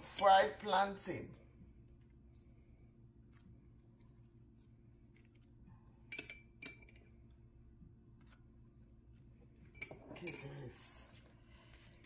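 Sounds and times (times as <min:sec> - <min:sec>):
faint low hum: 0:00.0 - 0:12.0
utensil clinking glass bowl: 0:09.7 - 0:10.8.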